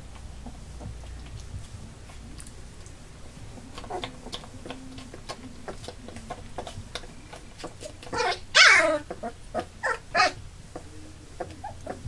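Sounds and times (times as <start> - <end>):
puppies whimpering: 3.6 - 12.0
puppy yelps: 7.8 - 10.4.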